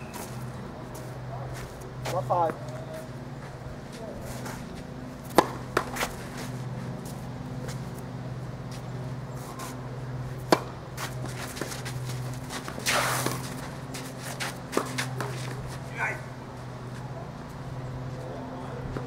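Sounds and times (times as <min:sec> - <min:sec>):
steady low hum: 0:00.0 - 0:19.0
shoe scrape: 0:03.9 - 0:04.9, 0:11.0 - 0:16.2
tennis ball bouncing: 0:05.2 - 0:06.2, 0:10.4 - 0:15.8
tennis ball struck by rackets: 0:05.2 - 0:06.2, 0:10.4 - 0:15.6.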